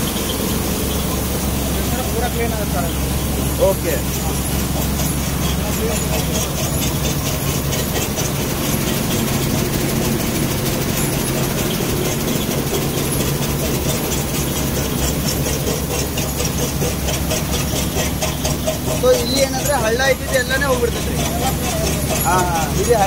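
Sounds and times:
machine hum with fast rattle: 0.0s - 23.0s.

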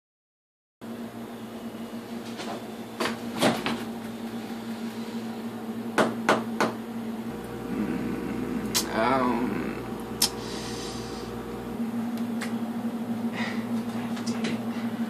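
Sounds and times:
steady hum: 6.9s - 15.0s.

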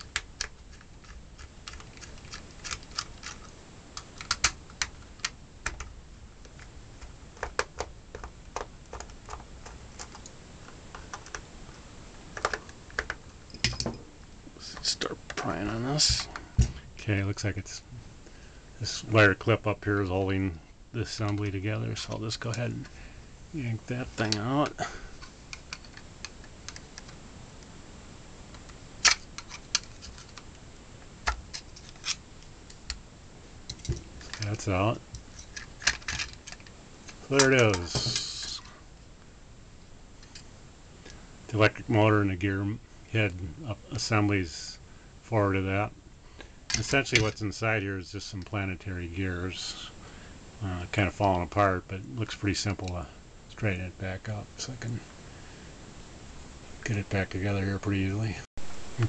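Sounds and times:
screwdriver clicking on plastic: 4.0s - 10.3s.

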